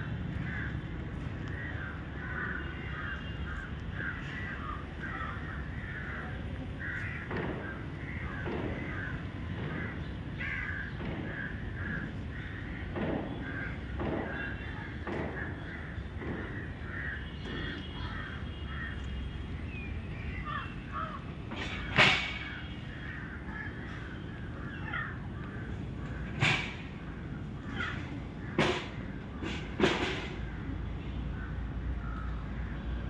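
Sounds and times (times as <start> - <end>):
crows cawing: 0.4 - 0.9, 1.5 - 19.0, 20.4 - 21.3, 22.3 - 29.1.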